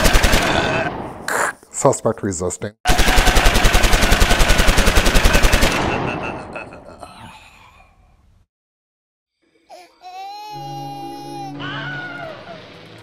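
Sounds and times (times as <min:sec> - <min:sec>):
machine-gun fire: 0:00.0 - 0:01.1, 0:02.9 - 0:06.4.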